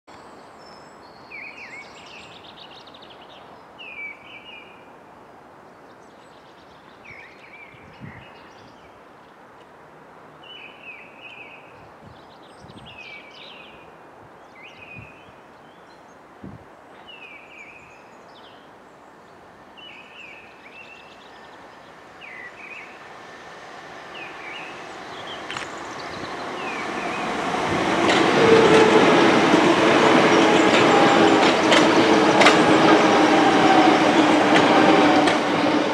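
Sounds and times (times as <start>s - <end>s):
electric train passing: 20.6s - 35.9s
wheel-on-rail noise: 22.8s - 35.9s.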